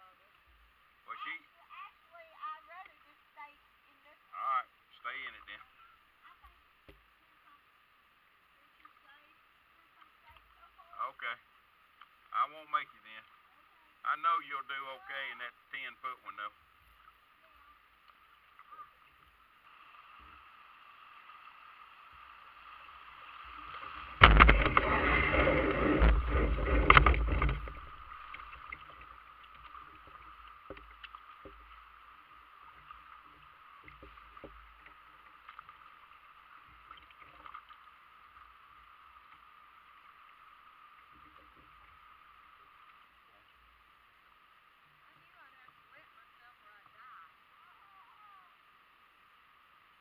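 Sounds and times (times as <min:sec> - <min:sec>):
water lapping against kayak hull: 0:16.2 - 0:47.9
splashing and knocking: 0:23.6 - 0:32.0, 0:32.6 - 0:36.0.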